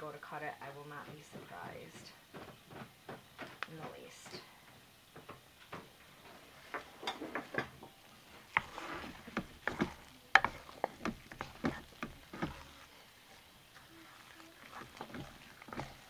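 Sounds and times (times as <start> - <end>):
spoon scraping ceramic pot: 8.5 - 12.9, 13.7 - 16.0.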